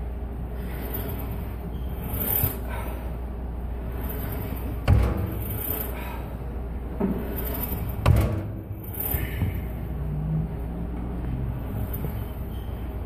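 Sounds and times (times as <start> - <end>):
steady low hum: 0.0 - 13.0
weight stack heavy knocks: 4.8 - 5.5, 7.9 - 8.8.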